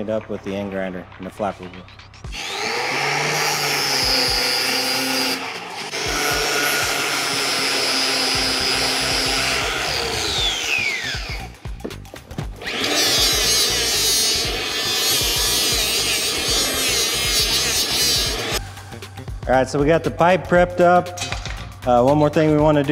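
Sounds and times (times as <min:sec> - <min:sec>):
die grinder high whine: 0:02.3 - 0:11.6, 0:12.6 - 0:18.6
angle grinder whining: 0:02.3 - 0:11.8, 0:12.5 - 0:18.9.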